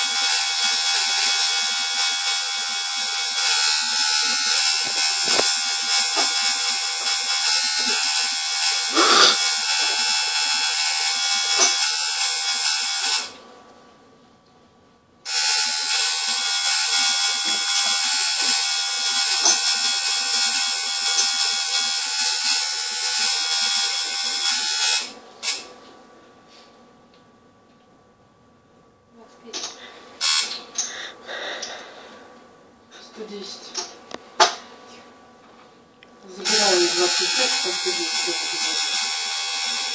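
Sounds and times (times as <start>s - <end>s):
electric tattoo machine buzzing: 0.0s - 13.4s, 15.2s - 25.7s, 29.6s - 32.2s, 36.4s - 39.9s.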